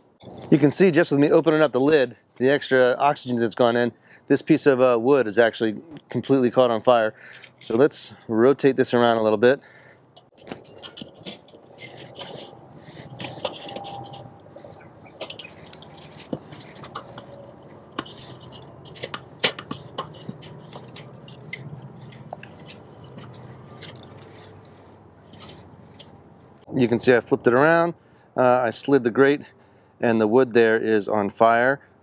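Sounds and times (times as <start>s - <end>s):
wood crackling in coals: 9.7s - 26.8s
tongs scraping on grill grate: 10.2s - 24.6s, 25.2s - 26.2s.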